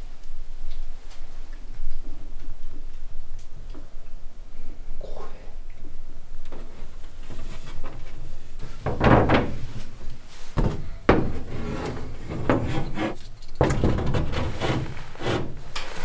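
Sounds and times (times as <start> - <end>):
wood scraping and rubbing: 6.6 - 16.0.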